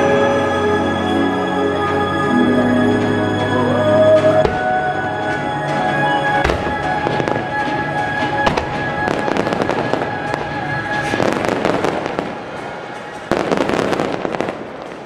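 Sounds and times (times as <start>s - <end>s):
music: 0.0s - 14.4s
fireworks crackling and popping: 6.4s - 15.0s.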